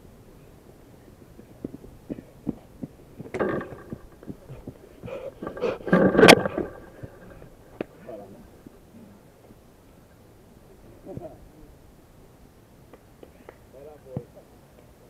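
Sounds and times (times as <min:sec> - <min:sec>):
knocks and muffled thumps: 0:01.6 - 0:07.9.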